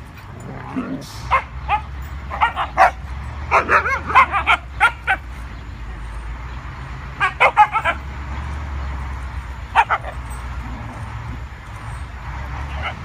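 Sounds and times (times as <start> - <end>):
dogs yipping and barking: 0.0 - 13.0.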